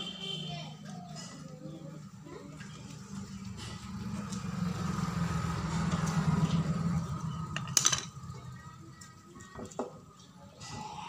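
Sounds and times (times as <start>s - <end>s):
low motor hum: 2.6s - 9.3s.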